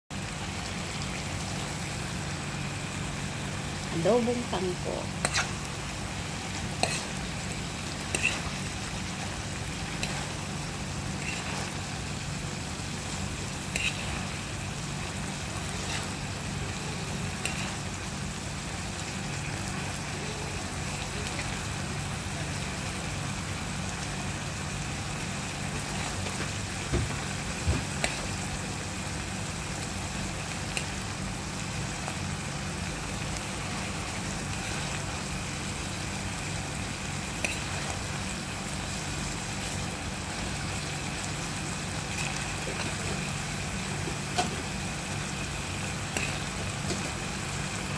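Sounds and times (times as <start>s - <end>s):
vegetables sizzling in a pan: 0.1s - 47.9s.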